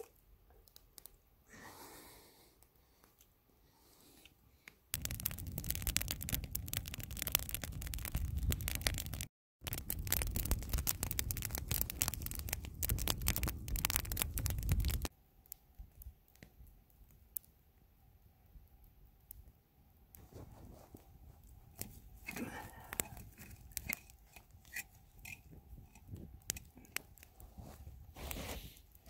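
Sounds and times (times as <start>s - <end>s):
campfire crackling and popping: 0.0s - 1.3s, 4.9s - 29.0s
low fire rush: 5.0s - 15.1s.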